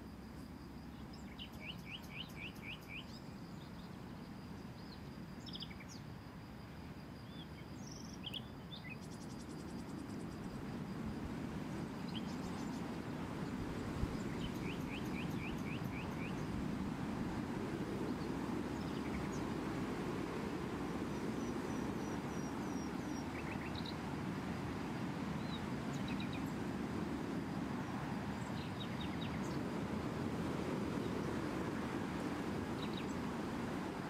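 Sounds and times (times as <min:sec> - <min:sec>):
small birds chirping: 0:14.1 - 0:16.6.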